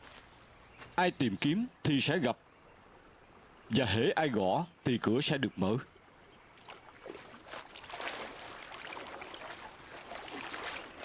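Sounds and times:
running water: 0:06.1 - 0:11.0
feet splashing in stream: 0:06.6 - 0:11.0.

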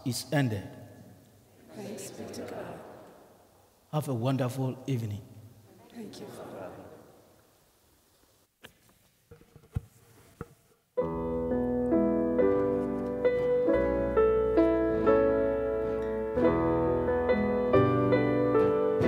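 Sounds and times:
piano playing chords and melody: 0:11.0 - 0:19.0.

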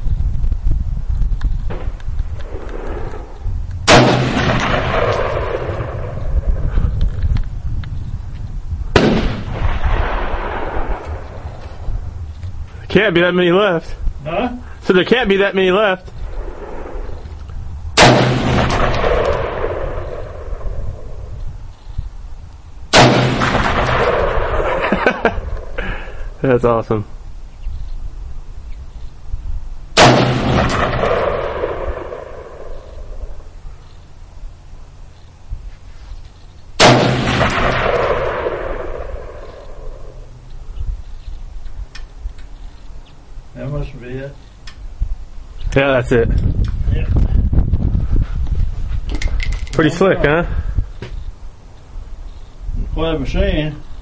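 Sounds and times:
rifle shots echoing: 0:01.7 - 0:06.6, 0:08.9 - 0:11.6, 0:18.0 - 0:21.4, 0:22.9 - 0:25.8, 0:30.0 - 0:33.5, 0:36.8 - 0:40.3.

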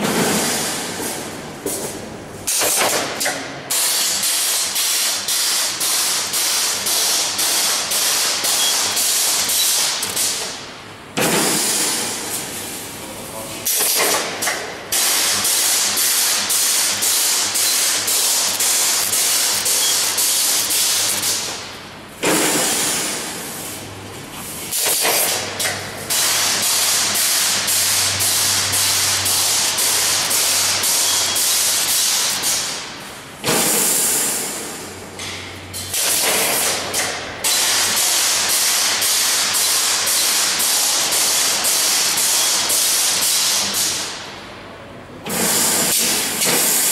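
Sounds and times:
welding machine hissing: 0:03.7 - 0:10.6, 0:14.9 - 0:21.6, 0:26.0 - 0:34.8, 0:45.3 - 0:46.9.

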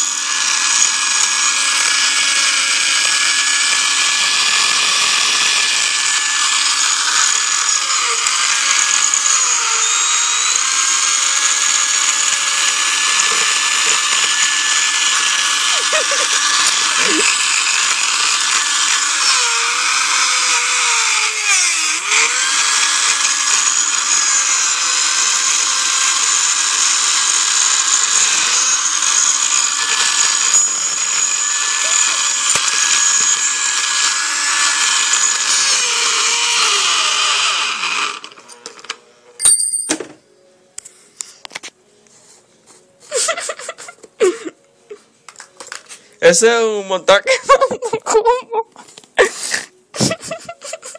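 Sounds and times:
blender motor whining: 0:00.0 - 0:39.0.

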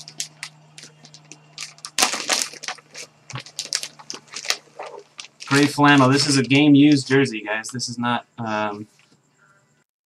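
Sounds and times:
plastic bag crinkling: 0:00.0 - 0:07.3.

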